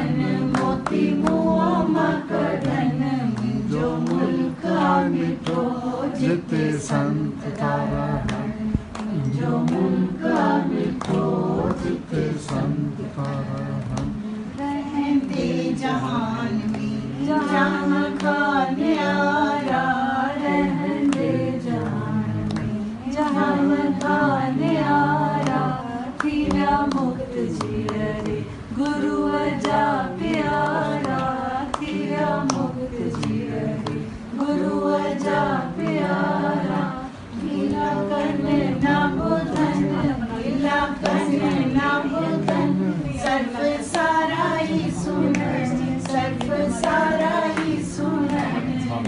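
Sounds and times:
group singing unaccompanied: 0:00.0 - 0:49.0.

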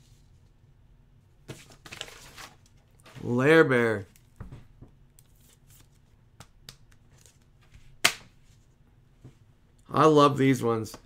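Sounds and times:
cards and plastic holder rustling: 0:01.5 - 0:03.3.

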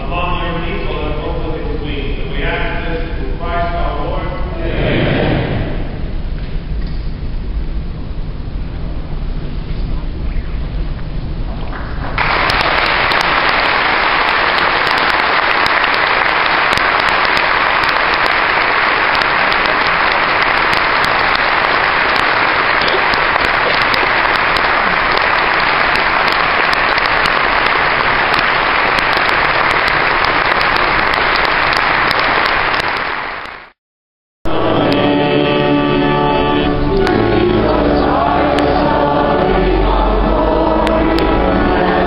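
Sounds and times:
crowd applauding: 0:12.0 - 0:33.8.

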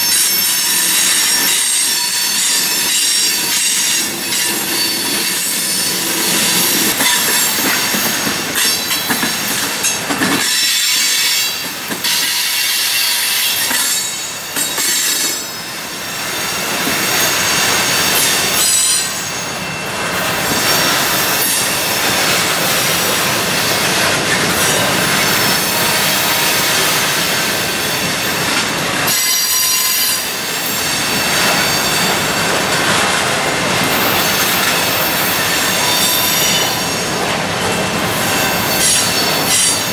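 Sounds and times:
train wheels clattering over rail: 0:00.0 - 0:15.6
high wheel squeal: 0:00.0 - 0:32.8, 0:33.9 - 0:39.9.

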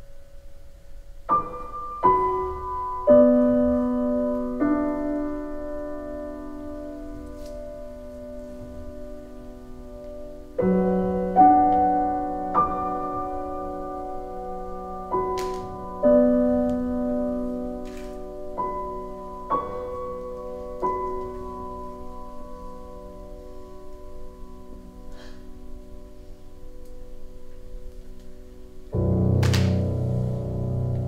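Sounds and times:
slow sparse piano music: 0:00.0 - 0:31.0.

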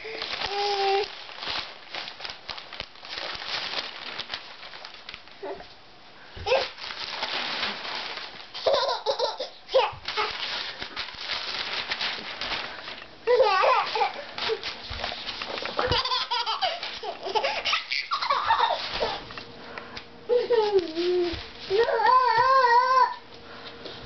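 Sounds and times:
newspaper rustling: 0:00.0 - 0:05.6, 0:06.4 - 0:19.5, 0:20.4 - 0:23.1
toddler's voice: 0:00.4 - 0:01.1, 0:09.7 - 0:10.3, 0:13.3 - 0:14.2, 0:20.3 - 0:23.2
toddler laughing: 0:08.6 - 0:10.3, 0:13.3 - 0:14.3, 0:15.8 - 0:19.2.

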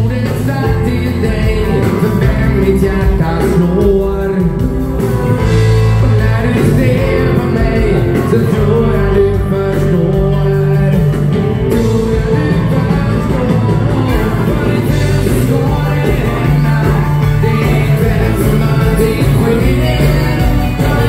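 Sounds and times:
live band playing: 0:00.0 - 0:21.0
person singing: 0:00.0 - 0:21.0.

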